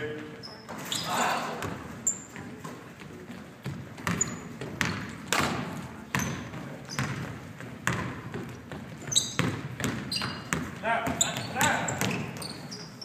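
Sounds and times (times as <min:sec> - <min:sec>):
sneaker squeaks: 0:00.3 - 0:02.9, 0:03.6 - 0:13.0
basketball bouncing on hardwood floor: 0:03.3 - 0:12.5.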